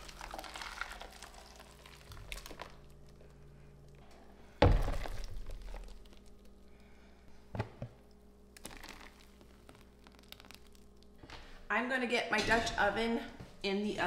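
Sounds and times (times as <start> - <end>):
thick puree pouring and splatting: 0.0 - 3.2, 4.6 - 6.6, 8.6 - 11.1.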